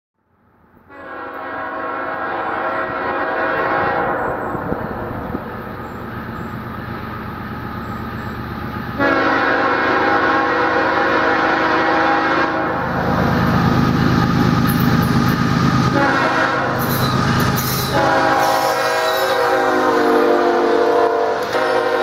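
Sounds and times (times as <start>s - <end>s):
locomotive air horn blast: 0.9s - 5.3s, 9.0s - 12.9s, 15.8s - 22.0s.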